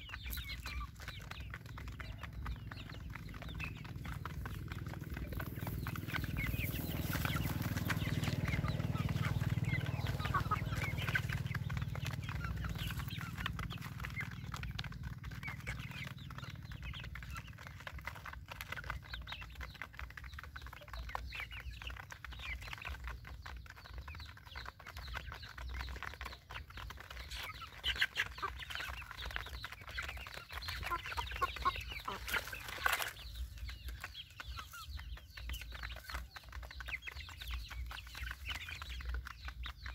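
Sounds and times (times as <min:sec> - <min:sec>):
chickens clucking: 0:00.0 - 0:39.9.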